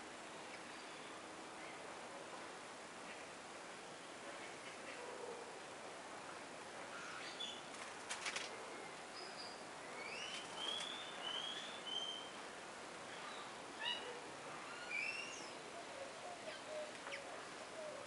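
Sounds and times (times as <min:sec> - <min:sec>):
steady outdoor hiss: 0:00.0 - 0:18.0
small birds chirping and whistling: 0:09.2 - 0:12.4, 0:14.7 - 0:15.6.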